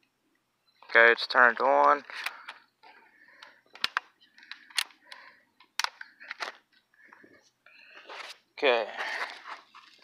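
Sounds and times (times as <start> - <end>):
plastic case clicks and snaps: 3.8 - 5.0, 5.6 - 6.6.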